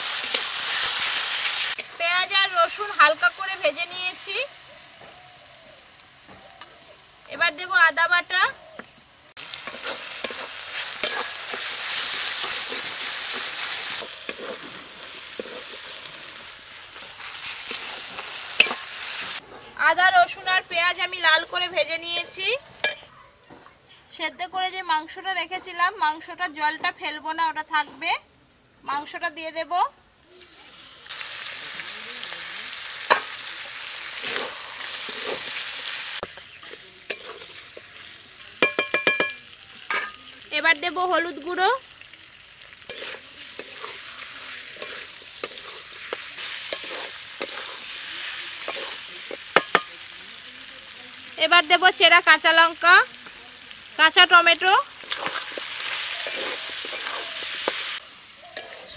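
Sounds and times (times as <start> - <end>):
onions sizzling in hot oil: 0.0 - 23.0, 30.3 - 58.9
metal spatula scraping pan: 9.6 - 16.2, 36.6 - 38.1, 42.9 - 49.9, 55.0 - 57.8, 58.6 - 58.9.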